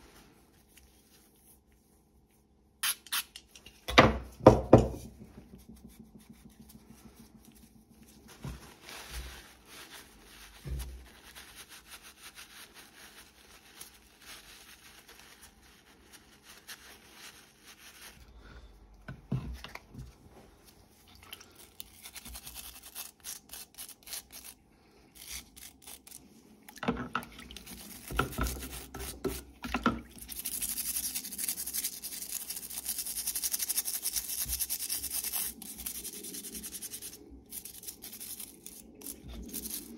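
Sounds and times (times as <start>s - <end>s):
parts knocking on wooden bench: 3.9s - 5.2s
brush scrubbing in soapy water: 5.1s - 18.3s, 27.3s - 39.9s.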